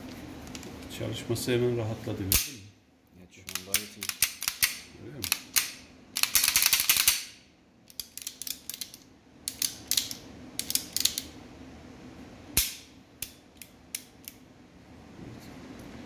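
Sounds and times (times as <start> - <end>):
sharp metallic snap: 2.3 - 2.7, 12.6 - 14.4
pistol slide clicks and rattles: 3.5 - 11.3.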